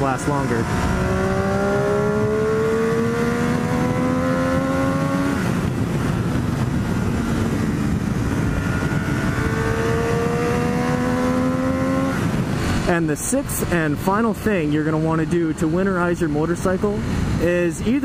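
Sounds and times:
motorcycle engine accelerating: 0.0 - 17.4
wind noise on microphone: 0.0 - 18.0.

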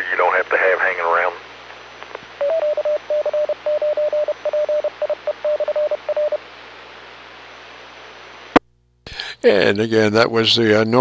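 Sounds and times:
radio hiss: 0.0 - 2.2
morse code tone: 2.4 - 6.4.

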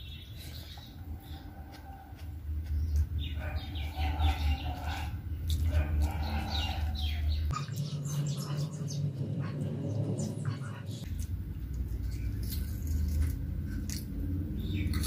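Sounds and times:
birds chirping: 0.0 - 13.4, 14.1 - 15.0
low steady hum: 0.0 - 15.0
person chewing with mouth clicks: 0.6 - 6.9.

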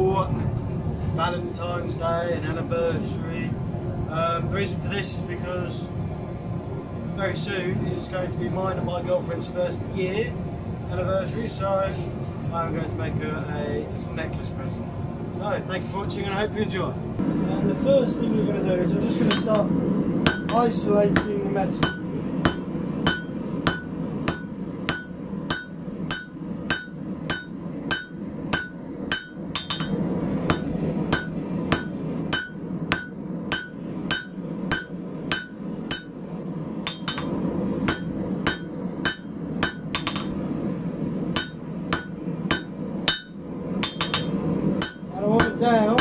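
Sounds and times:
forge humming: 0.0 - 46.0
hammer ringing on anvil: 19.3 - 36.2, 36.8 - 40.4, 41.4 - 46.0.

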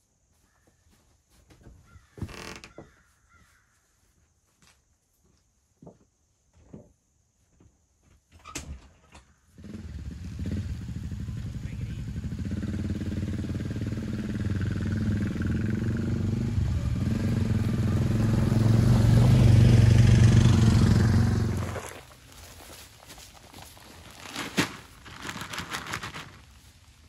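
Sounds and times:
atv engines running: 9.6 - 23.8.

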